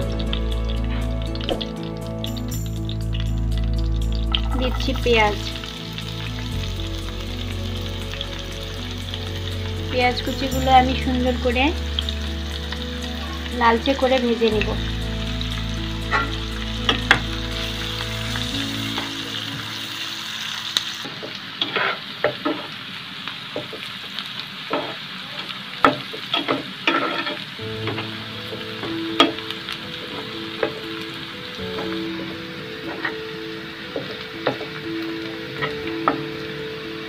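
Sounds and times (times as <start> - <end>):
onions sizzling in oil: 0.0 - 37.0
spatula clicking and scraping pan: 21.6 - 22.7, 25.8 - 28.1.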